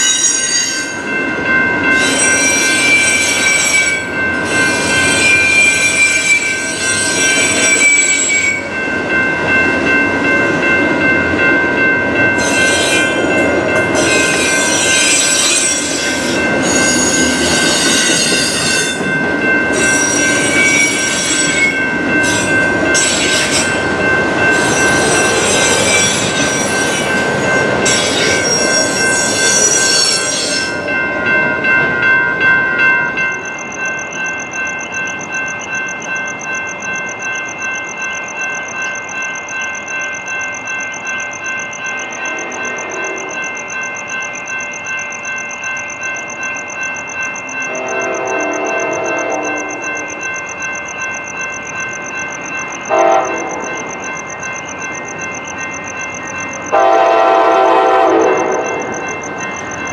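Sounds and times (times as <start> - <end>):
steel wheels squealing: 0.0 - 1.2, 1.8 - 8.8, 12.3 - 31.8
freight train rumbling past: 0.0 - 59.9
steady high tones: 0.0 - 59.9.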